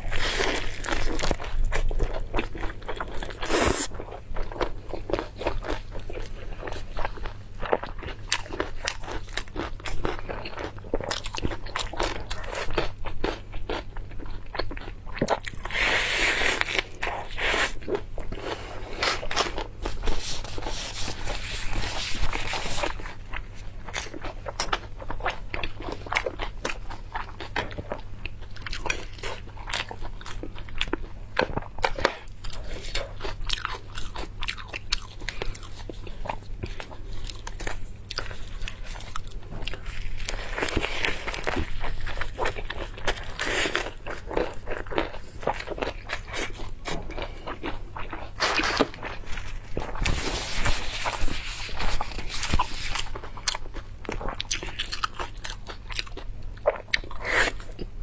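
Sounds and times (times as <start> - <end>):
crunching lettuce while chewing: 0.0 - 58.0.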